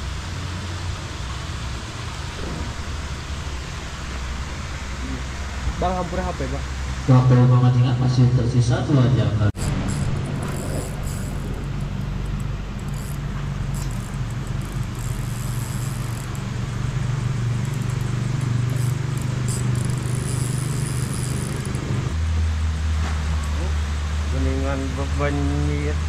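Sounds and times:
low motor hum: 0.0 - 26.0
faint high ticks: 10.4 - 16.8, 17.4 - 21.9.

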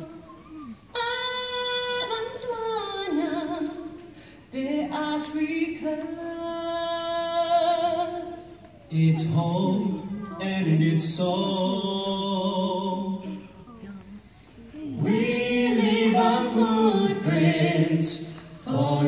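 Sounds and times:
choir singing a cappella: 14.9 - 19.0.

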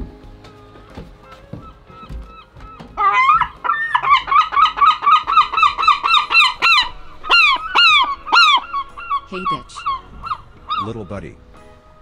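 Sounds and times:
gull calling: 0.5 - 12.0.

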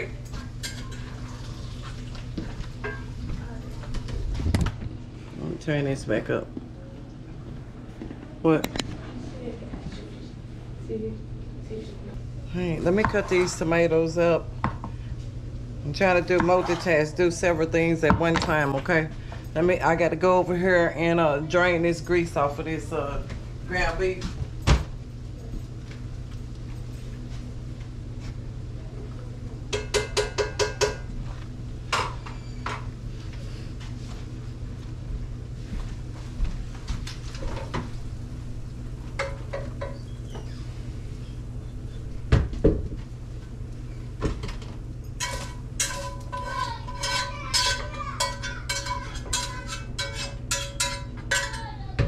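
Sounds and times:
metal utensil scraping skillet: 45.2 - 51.6.

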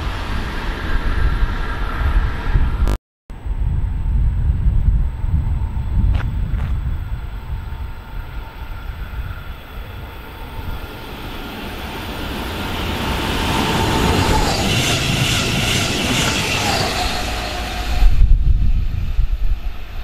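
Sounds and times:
train passing: 0.0 - 2.8, 3.6 - 20.0
train motor whine: 4.2 - 19.8
wheel and rail noise: 5.0 - 20.0.

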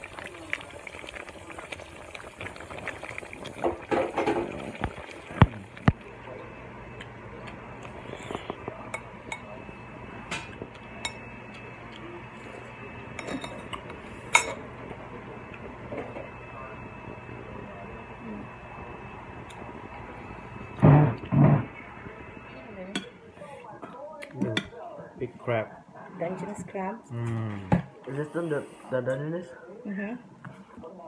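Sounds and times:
plates and utensils clinking: 13.2 - 14.6.

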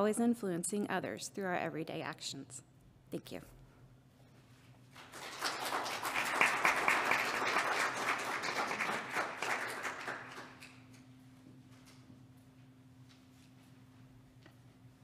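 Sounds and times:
congregation applauding: 5.0 - 10.9.

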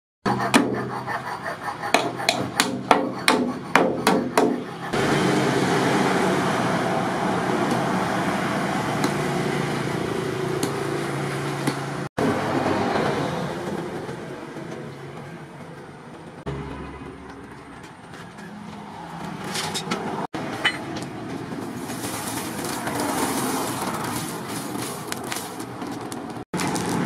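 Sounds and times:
steady background noise: 0.3 - 27.0
hammer striking chisel on metal: 1.9 - 4.7.

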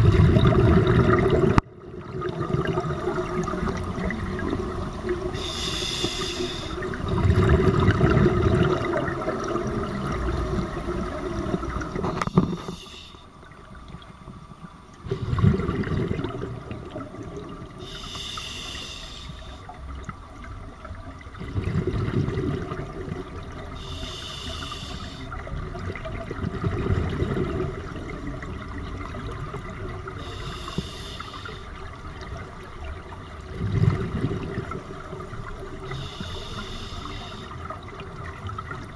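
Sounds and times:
exhaled bubbles rushing: 0.0 - 12.7, 15.0 - 17.9, 19.7 - 23.8, 25.3 - 30.3, 31.8 - 36.1
regulator inhale hiss: 5.4 - 7.0, 12.1 - 13.3, 17.8 - 19.7, 23.8 - 25.4, 30.2 - 31.8, 35.9 - 37.6.

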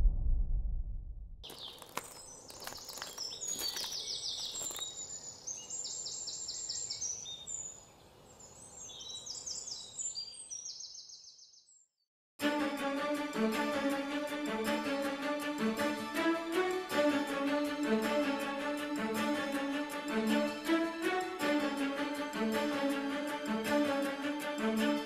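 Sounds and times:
low rumble: 0.0 - 1.4.

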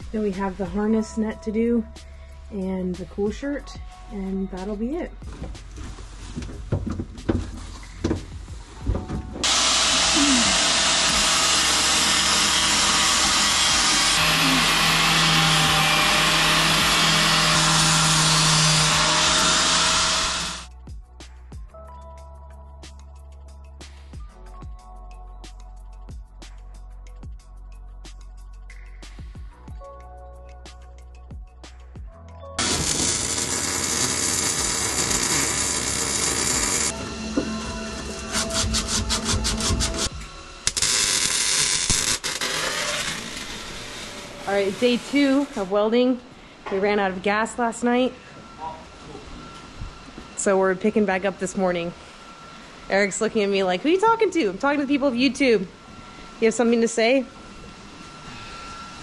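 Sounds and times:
angle grinder on steel tubing: 9.4 - 20.7, 32.6 - 45.9
welding arc crackling and sizzling: 9.4 - 20.7, 32.6 - 45.8.

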